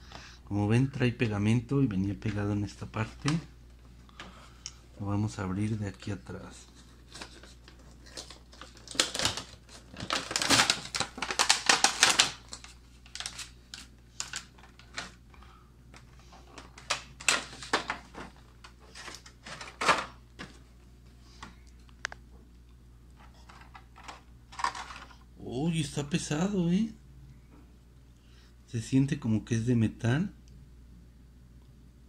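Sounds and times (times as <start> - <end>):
stiff plastic crackling: 2.2 - 3.5, 6.6 - 15.3, 15.9 - 20.6, 23.4 - 25.2.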